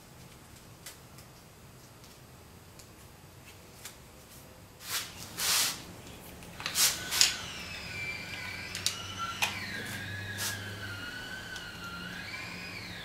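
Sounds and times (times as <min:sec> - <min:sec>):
wavering siren-like wail: 0:06.9 - 0:13.0.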